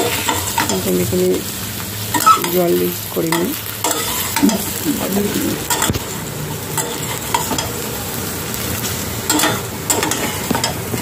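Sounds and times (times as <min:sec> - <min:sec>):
chicken sizzling in a pan: 0:00.0 - 0:11.0
metal spatula stirring: 0:03.8 - 0:04.8, 0:05.5 - 0:06.1, 0:06.8 - 0:07.8, 0:09.3 - 0:10.8.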